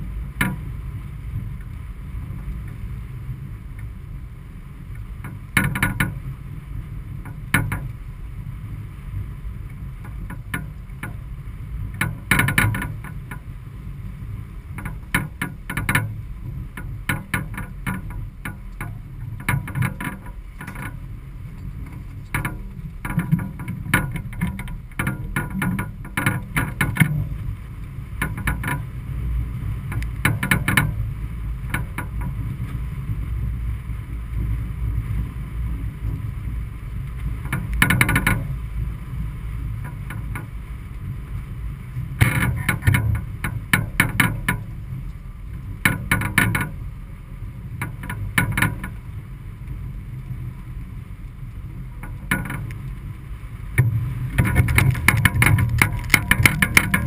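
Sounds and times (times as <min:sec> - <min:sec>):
wind and water rushing: 0:00.0 - 0:57.0
sharp knocks and clicks: 0:00.4 - 0:00.7, 0:05.2 - 0:06.2, 0:07.2 - 0:08.0, 0:10.0 - 0:11.2, 0:11.9 - 0:13.5, 0:14.8 - 0:21.0, 0:21.6 - 0:27.4, 0:28.2 - 0:28.9, 0:29.9 - 0:32.8, 0:37.2 - 0:38.6, 0:39.8 - 0:40.6, 0:42.2 - 0:44.7, 0:45.5 - 0:46.8, 0:47.8 - 0:49.0, 0:52.0 - 0:53.0, 0:53.8 - 0:57.0.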